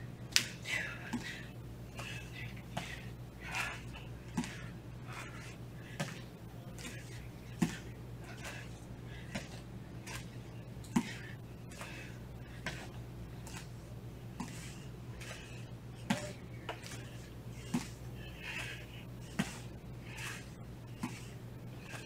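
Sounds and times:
steady low hum: 0.0 - 22.0
bare feet thudding on mat: 5.9 - 8.6, 9.2 - 10.3, 10.9 - 13.8, 14.4 - 22.0.

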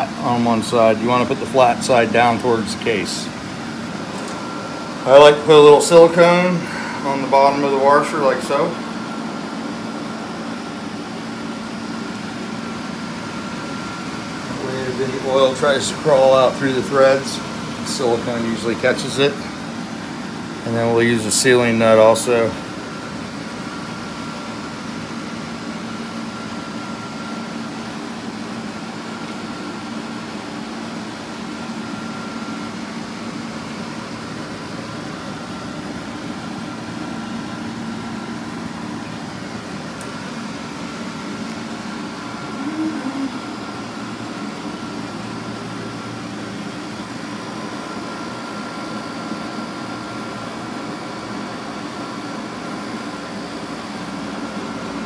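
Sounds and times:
steady mechanical hum: 0.0 - 55.0
faint high tone: 42.6 - 43.4.

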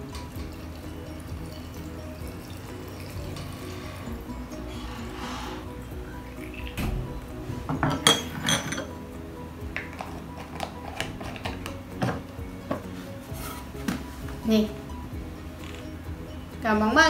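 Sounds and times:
water pouring into glass bottle: 0.0 - 5.3
background music: 0.0 - 17.0
glass clinks and knocks: 7.7 - 8.9.

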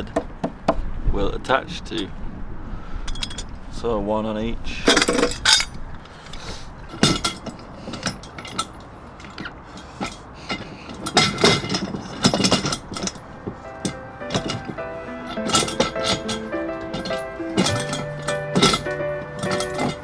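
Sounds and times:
metal hardware clinking: 3.0 - 3.6, 4.9 - 20.0.

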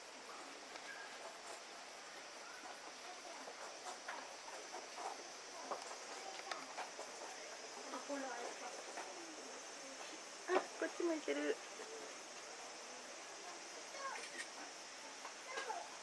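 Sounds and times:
insect chorus whine and chirping: 0.0 - 16.0.

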